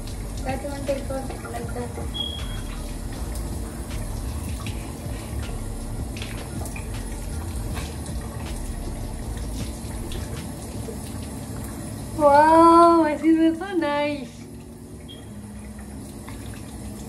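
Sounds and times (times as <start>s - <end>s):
small water splashes: 0.0s - 12.2s
tap water running: 0.0s - 17.0s.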